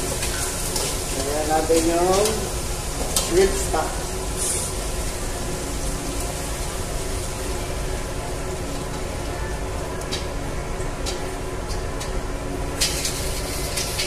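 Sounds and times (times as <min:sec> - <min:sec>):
shrimp sizzling in a pot: 0:00.0 - 0:09.2, 0:12.7 - 0:14.0.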